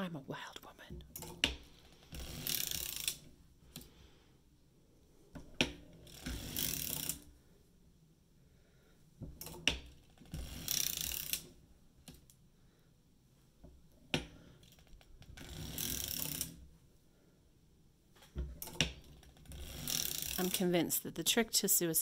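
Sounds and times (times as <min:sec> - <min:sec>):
knitting machine rasping: 0:01.2 - 0:04.0, 0:05.3 - 0:07.4, 0:09.4 - 0:12.3, 0:14.1 - 0:16.6, 0:18.4 - 0:21.0.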